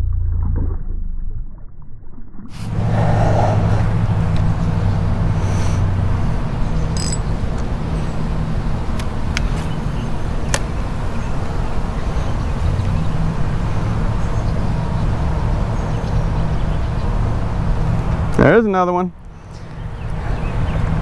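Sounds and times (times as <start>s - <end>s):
road traffic noise: 2.6s - 21.0s
sharp clicks: 7.0s - 7.2s.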